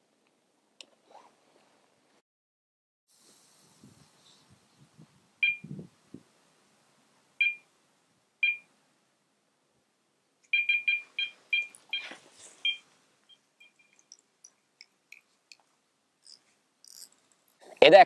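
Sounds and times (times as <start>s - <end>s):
electronic bite alarm beeping: 5.4s - 5.7s, 7.4s - 7.6s, 8.4s - 8.7s, 10.5s - 14.1s.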